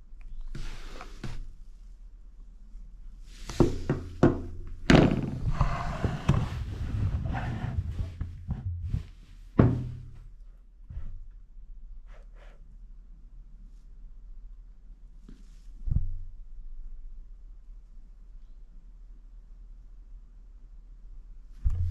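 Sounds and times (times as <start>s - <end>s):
knocks and thuds on wooden table: 3.6s - 6.6s, 9.6s - 10.2s.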